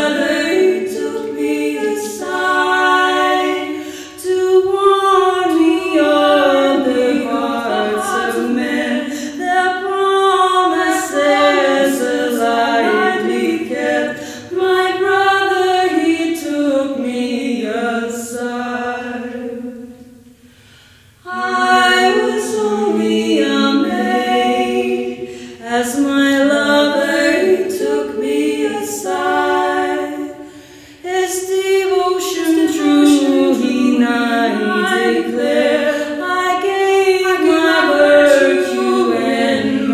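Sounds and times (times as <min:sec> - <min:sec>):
women singing a cappella: 0:00.0 - 0:39.9.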